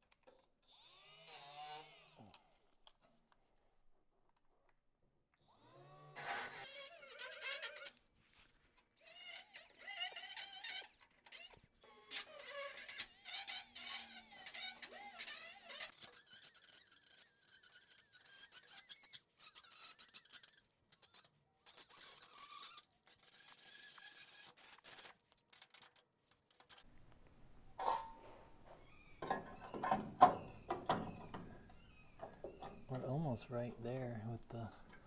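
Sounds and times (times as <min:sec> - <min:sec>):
thin squeal of grinding wheel: 0:06.2 - 0:08.0, 0:09.0 - 0:25.9.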